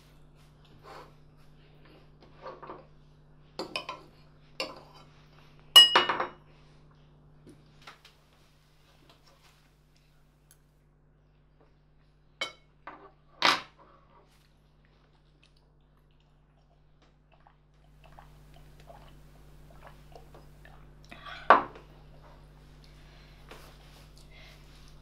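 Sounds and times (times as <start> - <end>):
forks clinking on ceramic plates: 5.8 - 6.4.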